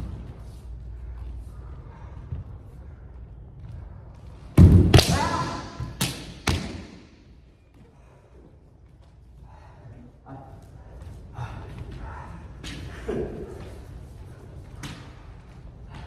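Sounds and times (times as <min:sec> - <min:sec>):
person shouting: 0:05.0 - 0:06.0.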